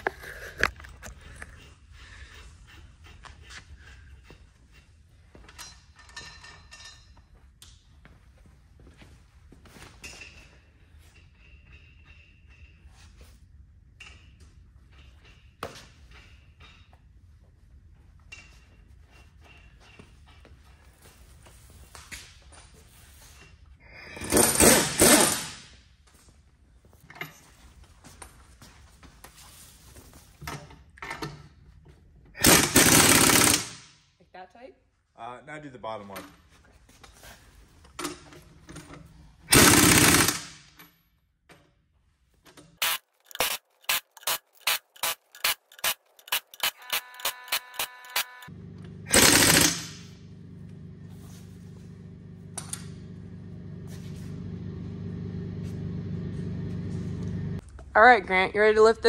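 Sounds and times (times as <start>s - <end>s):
impact wrench hammering: 24.2s - 25.7s, 32.4s - 34.0s, 39.5s - 40.8s, 42.8s - 50.3s
low machine hum: 48.2s - 57.6s.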